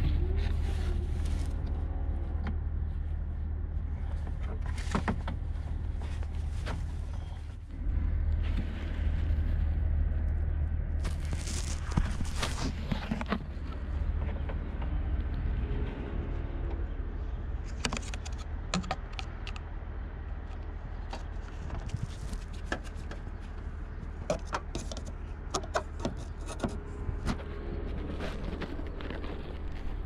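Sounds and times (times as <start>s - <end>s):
steady low rumble: 0.0s - 30.0s
plastic clicks and knocks: 17.7s - 19.7s.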